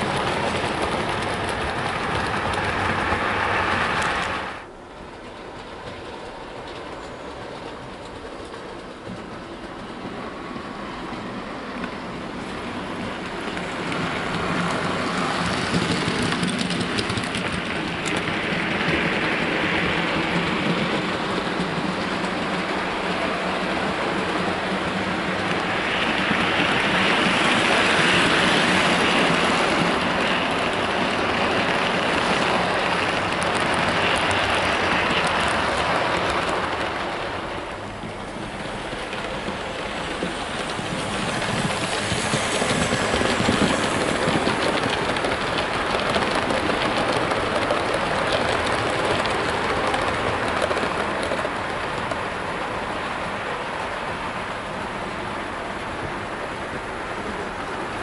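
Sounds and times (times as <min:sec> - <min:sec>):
model train wheels clattering: 0:13.2 - 0:37.2, 0:38.0 - 0:52.3.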